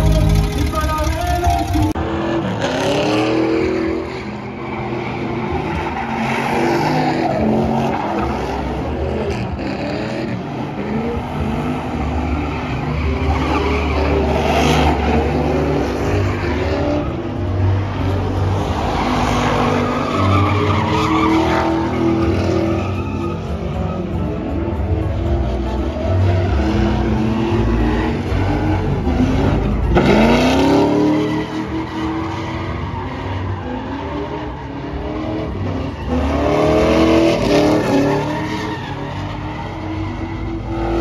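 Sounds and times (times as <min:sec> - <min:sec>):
tires squealing on asphalt: 0:00.0 - 0:41.0.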